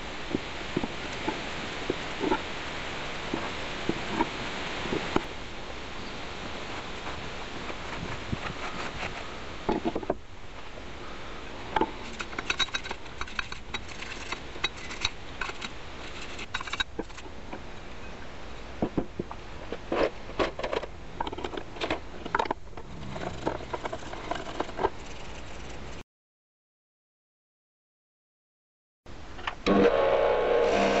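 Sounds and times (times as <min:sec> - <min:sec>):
steady hiss: 0:00.0 - 0:20.4
rag rubbing: 0:06.5 - 0:10.1.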